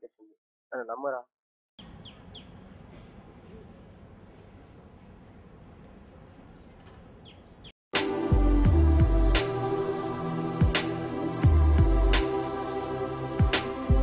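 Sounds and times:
birds chirping: 1.8 - 7.8
music with heavy bass beat: 8.0 - 14.0.

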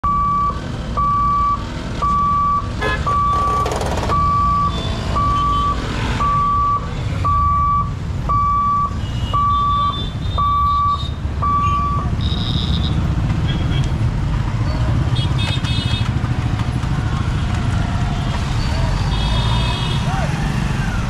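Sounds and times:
barrier warning beeps: 0.0 - 13.1.

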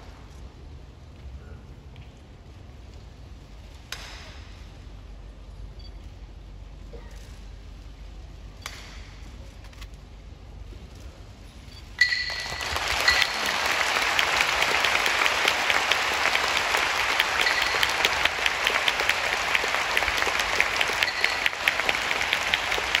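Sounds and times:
crowd clapping: 12.0 - 23.0.

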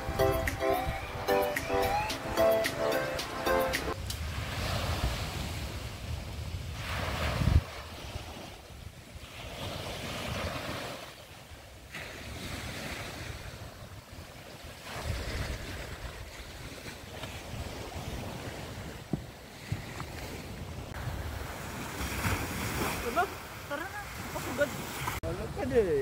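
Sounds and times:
small waves washing onto beach: 3.3 - 26.0
wind rumble on microphone: 4.0 - 10.8, 11.5 - 22.9.

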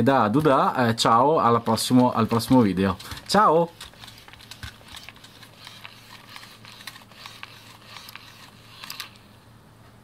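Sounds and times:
hands handling toy clicks and rustles: 1.5 - 9.3.

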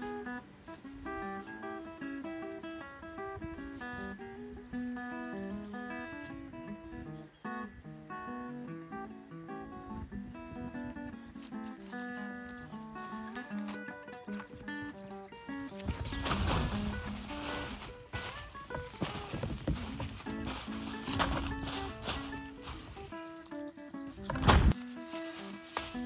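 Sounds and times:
acoustic guitar music: 0.0 - 26.0.

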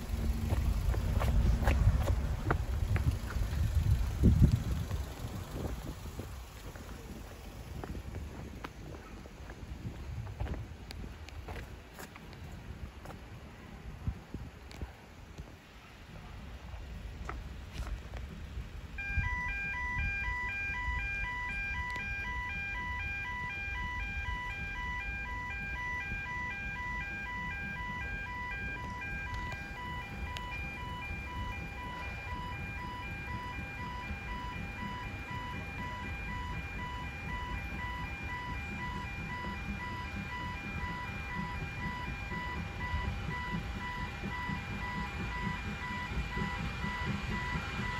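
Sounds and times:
low rumble: 0.0 - 11.5
two-tone electronic alarm pulsing: 19.0 - 47.9.

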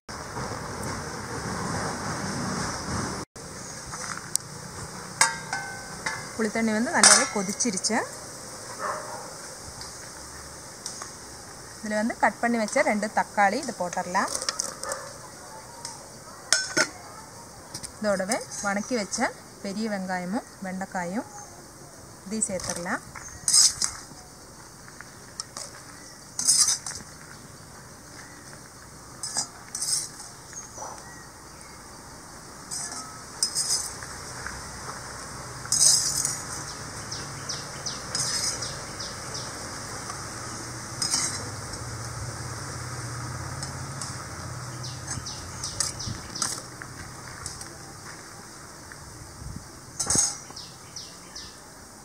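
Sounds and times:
metal ladle scraping iron pan: 5.2 - 6.4, 7.0 - 7.9, 22.6 - 24.0, 26.4 - 27.0, 29.2 - 30.3, 32.7 - 34.0, 35.7 - 36.6, 38.1 - 38.9, 41.0 - 41.6, 50.0 - 50.5.

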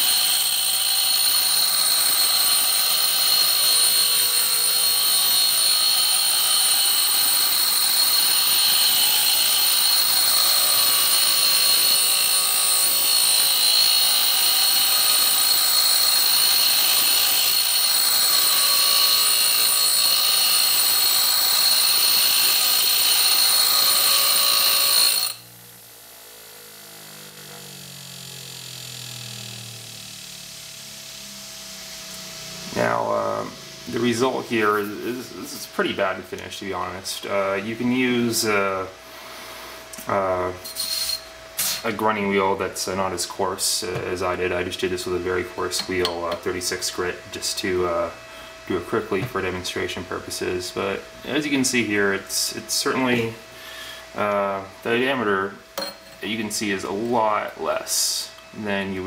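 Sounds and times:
bench grinder grinding metal: 0.0 - 36.0, 40.6 - 41.3
low hum sliding in pitch: 29.4 - 35.6.

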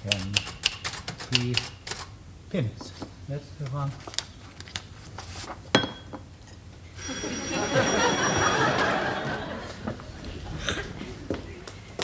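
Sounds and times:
electric doorbell ringing: 7.0 - 9.3.

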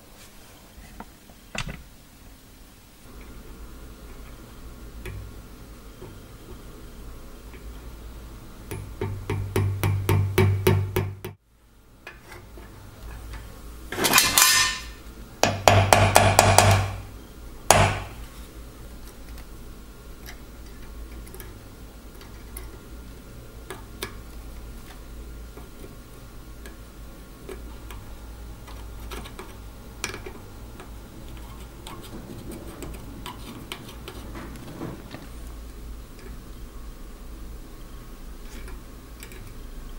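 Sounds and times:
hammer tapping metal pin: 15.4 - 17.0.

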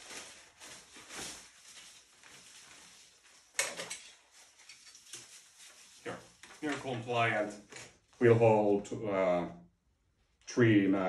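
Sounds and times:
nylon fabric rustling: 0.0 - 7.6.

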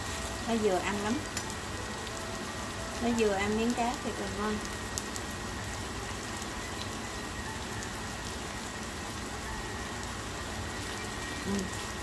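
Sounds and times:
fish sizzling in oil: 0.0 - 12.0.

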